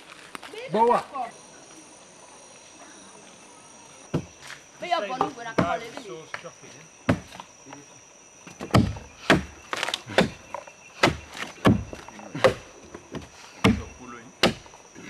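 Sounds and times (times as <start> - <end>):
axes thunking into log: 7.1 - 7.5, 8.4 - 14.8.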